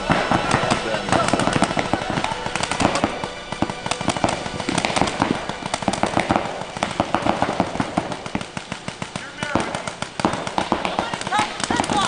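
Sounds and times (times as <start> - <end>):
rapid popping and cracking: 0.0 - 12.0.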